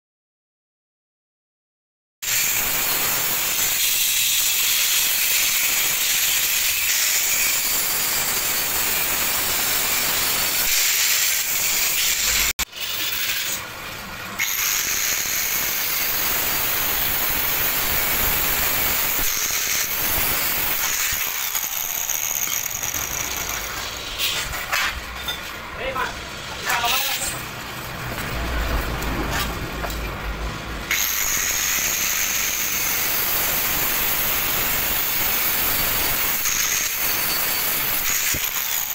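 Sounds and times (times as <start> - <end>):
angle grinder grinding steel: 2.2 - 38.9.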